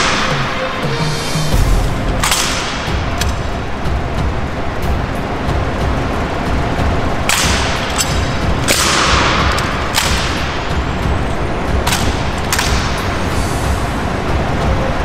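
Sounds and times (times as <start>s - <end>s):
low rumble: 0.8s - 15.0s
rifles slapped and grounded: 2.2s - 3.5s, 7.2s - 11.1s, 11.8s - 13.2s.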